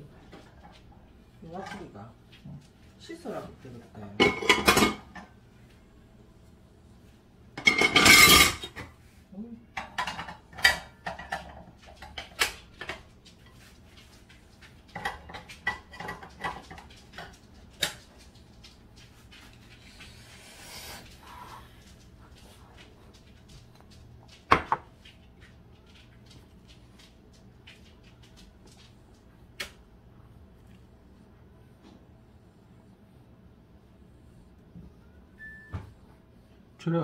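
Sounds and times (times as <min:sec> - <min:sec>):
dishes and cutlery clattering: 0:04.2 - 0:05.4, 0:07.6 - 0:08.9, 0:09.8 - 0:13.6, 0:14.8 - 0:18.1.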